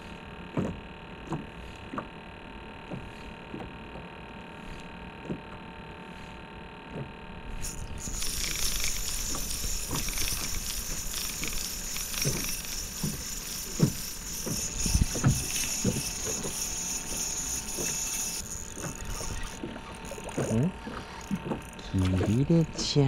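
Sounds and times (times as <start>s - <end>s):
fishing reel whirring: 7.4s - 23.0s.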